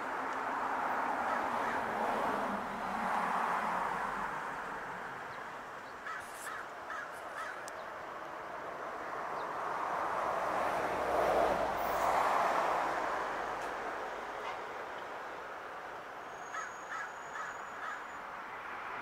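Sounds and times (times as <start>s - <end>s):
crow cawing: 6.0s - 7.7s, 16.5s - 18.1s.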